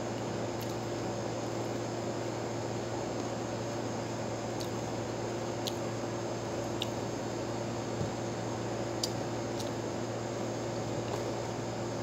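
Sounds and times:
background hiss and hum: 0:00.0 - 0:12.0
crisp clicks from chewing grapes: 0:00.2 - 0:00.8, 0:04.6 - 0:04.8, 0:05.6 - 0:05.9, 0:09.0 - 0:09.8.

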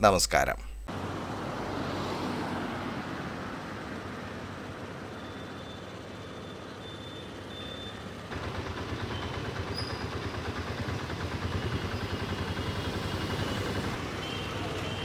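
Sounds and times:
street traffic: 0:00.9 - 0:15.0
engine idling: 0:08.0 - 0:14.0.

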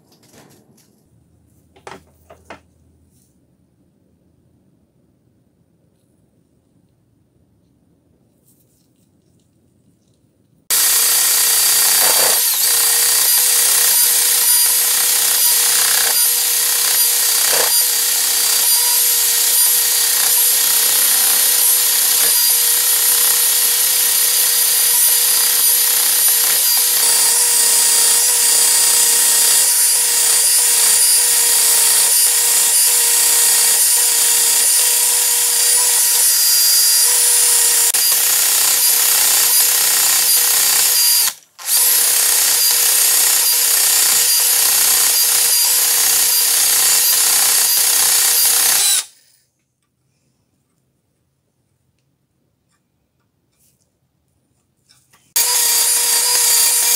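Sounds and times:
rotary tool motor whine: 0:10.7 - 0:49.4, 0:55.4 - 0:56.9.

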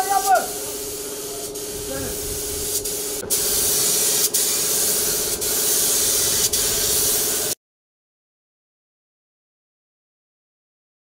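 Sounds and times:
paint spray gun hissing: 0:00.0 - 0:07.6.

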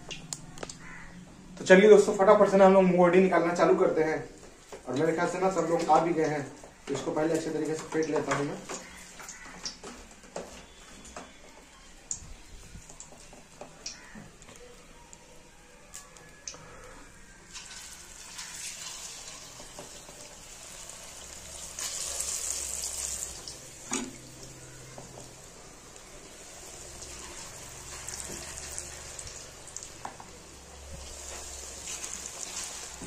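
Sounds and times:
batter sizzling in hot oil: 0:17.4 - 0:33.0.

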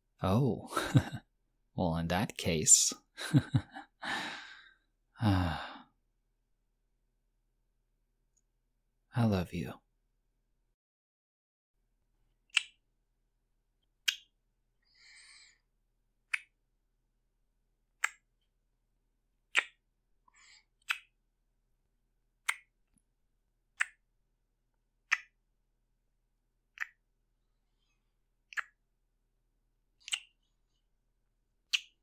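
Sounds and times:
lip smacks of kissing: 0:20.8 - 0:21.1, 0:30.0 - 0:30.3, 0:31.7 - 0:32.0.

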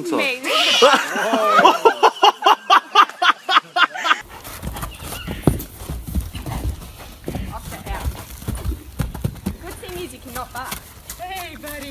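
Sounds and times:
person laughing hard: 0:00.6 - 0:04.2
horse hooves on soft ground: 0:04.2 - 0:11.9.

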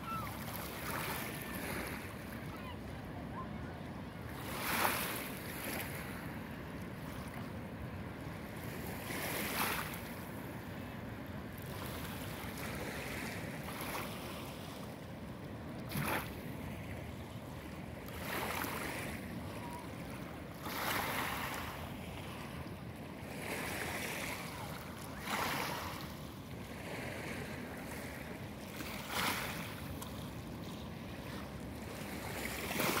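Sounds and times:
light wind: 0:00.0 - 0:33.0
waves lapping onto pebbly shore: 0:00.1 - 0:02.8, 0:08.6 - 0:10.2, 0:18.1 - 0:22.5, 0:23.2 - 0:33.0.

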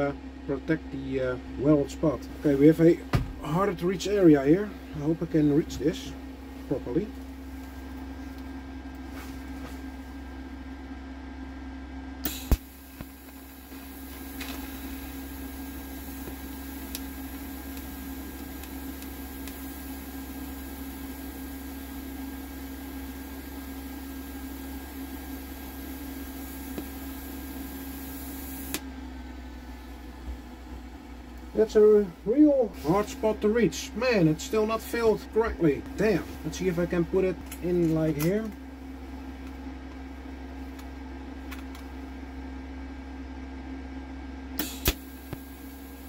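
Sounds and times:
steady hum: 0:00.0 - 0:46.0
welding arc hissing: 0:12.2 - 0:28.8, 0:44.6 - 0:46.0
welding arc striking snap: 0:12.2 - 0:28.9, 0:44.6 - 0:46.0.

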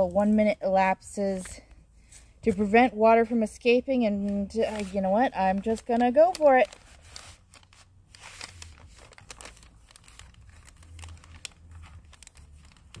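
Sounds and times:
heater bag crinkling and rustling: 0:04.2 - 0:13.0.

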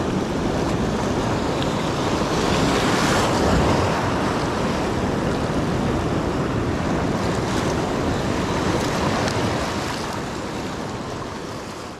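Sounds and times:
sea surf breaking: 0:00.0 - 0:11.9
wind buffeting microphone: 0:00.0 - 0:11.9.

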